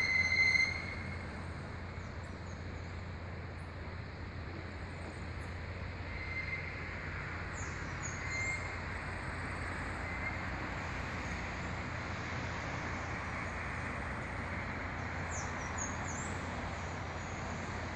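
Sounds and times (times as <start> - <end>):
distant road traffic hum: 0.0 - 17.9.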